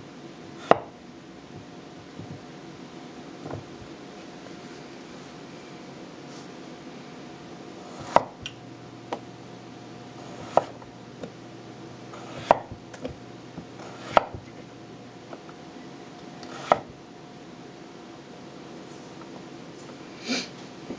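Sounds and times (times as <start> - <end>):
knife slicing potato: 7.8 - 8.5, 10.1 - 11.4, 12.1 - 14.5, 16.4 - 17.0.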